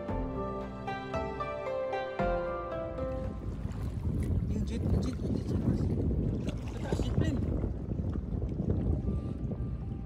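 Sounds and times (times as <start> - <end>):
water noise: 0.0 - 10.0
wind on microphone: 3.0 - 10.0
light water splash: 3.2 - 8.2.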